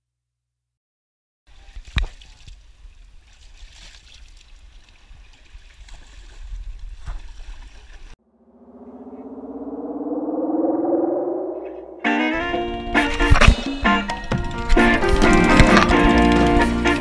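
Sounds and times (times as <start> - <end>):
water lapping and splashing: 1.6 - 8.2
steady low rumble: 8.3 - 12.9.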